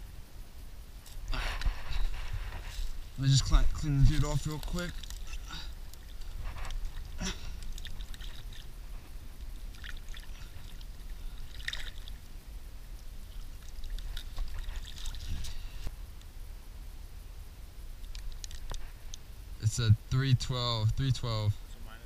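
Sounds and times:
steady low rumble: 0.0 - 22.0
shallow water splashing: 1.6 - 15.9.

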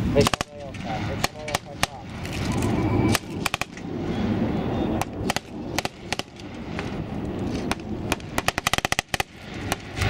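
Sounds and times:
gunshots: 0.0 - 2.1, 3.1 - 3.8, 5.0 - 6.4, 7.6 - 10.0
steady low rumble: 0.0 - 10.0
machine-gun burst: 8.3 - 9.8.

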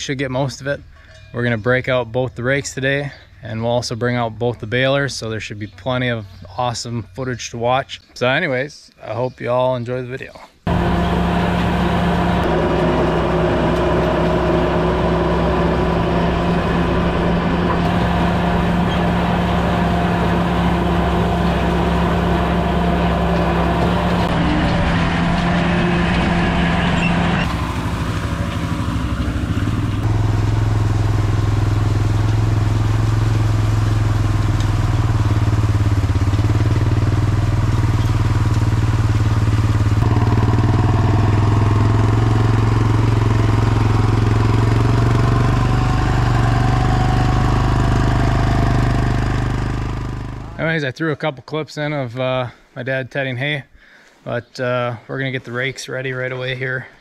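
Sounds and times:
tractor diesel engine running: 10.7 - 50.7.

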